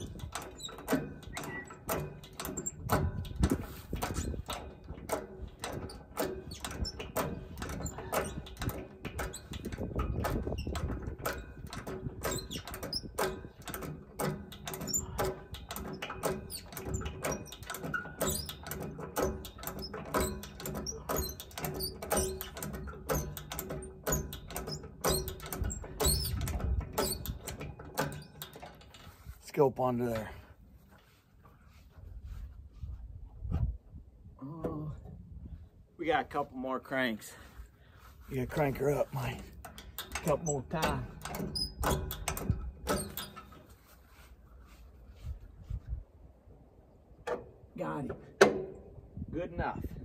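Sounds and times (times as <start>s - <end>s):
hydraulic hand pump clicking: 0.0s - 29.3s, 38.5s - 43.8s
lever squeaking: 0.0s - 29.3s, 38.4s - 43.8s.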